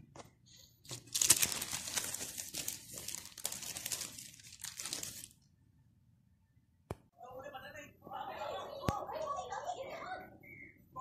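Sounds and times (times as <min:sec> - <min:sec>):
plastic sheet crinkling: 0:00.8 - 0:05.4.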